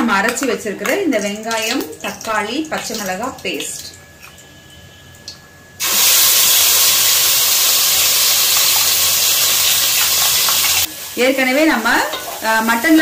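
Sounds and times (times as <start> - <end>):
paste sizzling in hot oil: 5.8 - 13.0.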